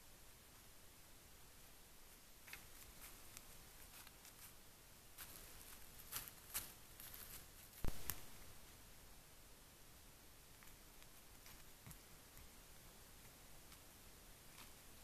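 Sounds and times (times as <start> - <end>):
quiet hiss: 0.0 - 15.0
rustling in dry leaves: 2.4 - 8.4.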